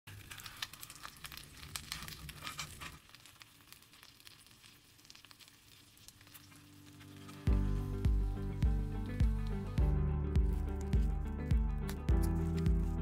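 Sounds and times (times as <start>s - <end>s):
oil sizzling in a skillet: 0.1s - 9.8s.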